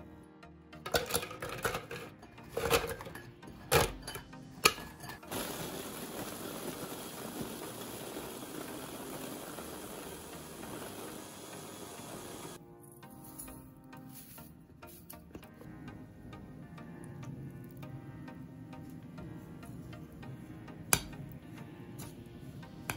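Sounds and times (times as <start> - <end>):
electric chopper grinding: 5.0 - 12.6.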